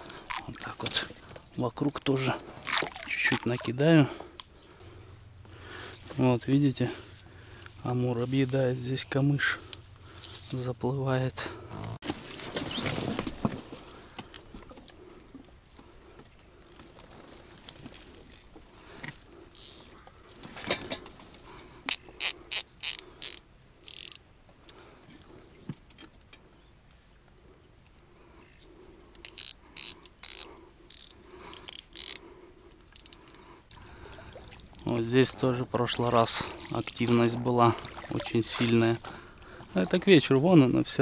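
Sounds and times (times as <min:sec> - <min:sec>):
rustling noise: 0:12.0 - 0:14.1.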